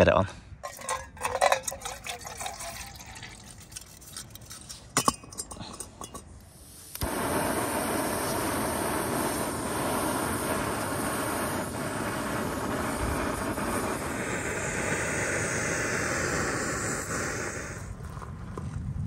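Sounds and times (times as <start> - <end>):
hot water pouring: 0.6 - 4.8, 7.0 - 18.7
gas stove hissing: 6.0 - 18.0.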